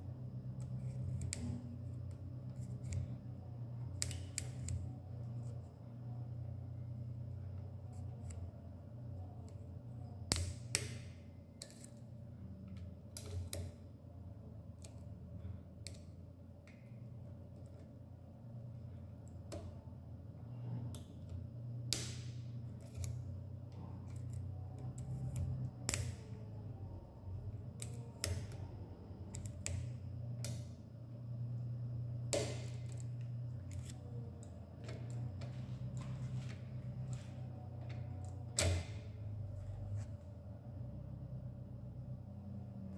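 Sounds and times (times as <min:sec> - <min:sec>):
low steady hum: 0:00.0 - 0:42.9.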